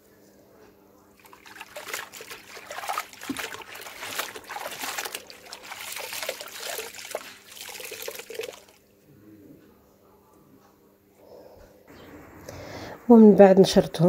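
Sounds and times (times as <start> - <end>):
cloth sloshing in soapy water: 1.2 - 8.8
water trickling and splashing: 1.2 - 8.8.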